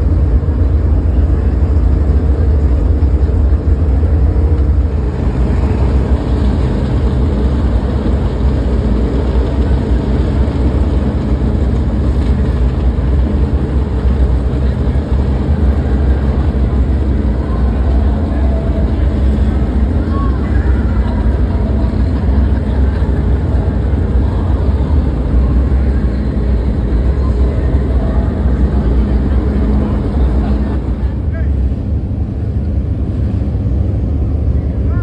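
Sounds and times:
loud low rumble: 0.0 - 35.0
people talking: 0.8 - 3.6, 8.8 - 31.8, 34.5 - 35.0.

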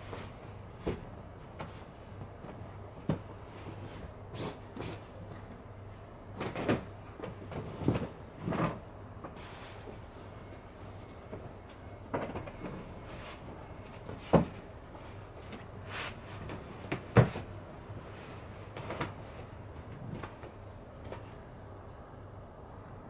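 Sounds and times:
bedsheets rustling: 0.0 - 20.6.

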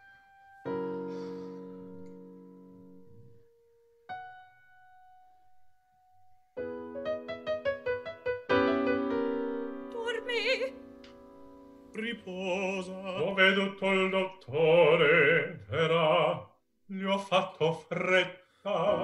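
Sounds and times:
piano accompaniment: 0.0 - 14.1
opera singing with vibrato: 9.9 - 10.8, 12.0 - 19.0.

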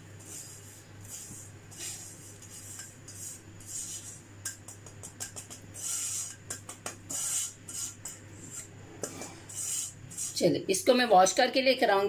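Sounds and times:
spatula scraping pan: 0.2 - 4.3, 5.3 - 10.4.

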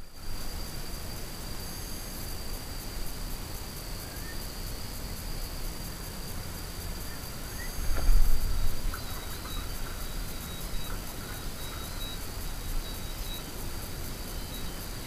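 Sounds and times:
insect chirring: 6.8 - 15.0.

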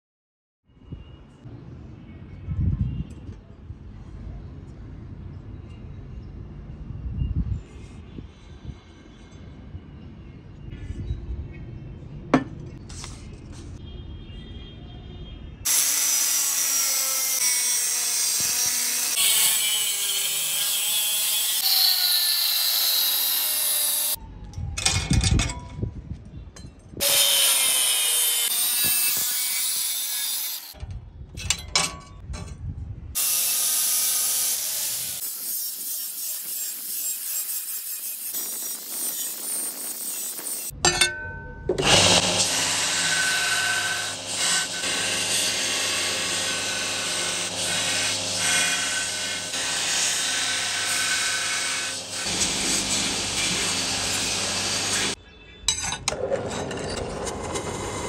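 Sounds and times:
angle grinder cutting steel: 15.7 - 24.2, 27.0 - 30.8, 33.2 - 40.8, 41.8 - 55.2.

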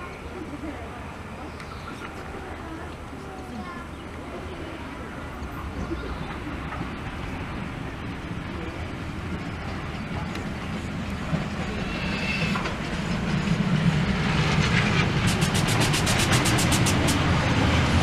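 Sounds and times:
steam train running: 4.2 - 18.0.

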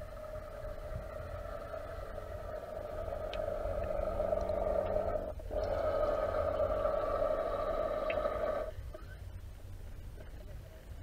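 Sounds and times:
underwater motor whine: 0.0 - 8.8
low underwater rumble: 0.0 - 9.0.

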